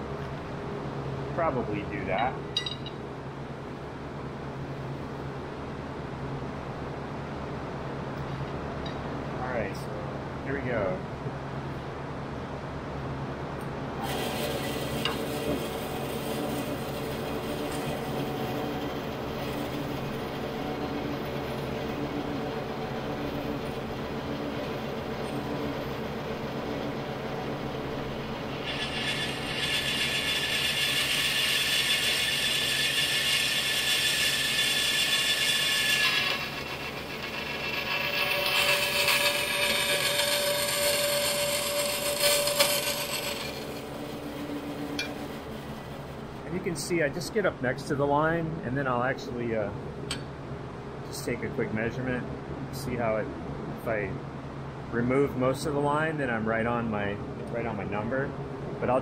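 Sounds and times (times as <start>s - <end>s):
bandsaw running: 14.0s - 46.4s
hiss of saw cutting metal: 28.6s - 43.8s.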